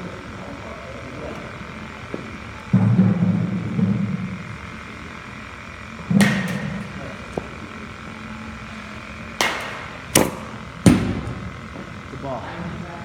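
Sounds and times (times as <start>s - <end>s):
bat cracking ball: 6.0s - 7.8s, 8.6s - 12.0s
bat ringing: 8.8s - 11.7s.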